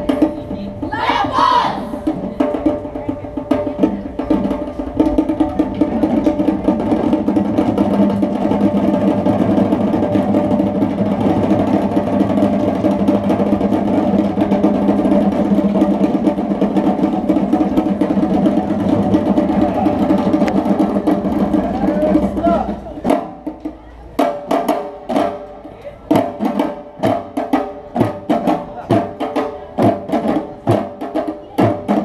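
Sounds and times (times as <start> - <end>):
hand drums playing fast rhythm: 2.0 - 32.0.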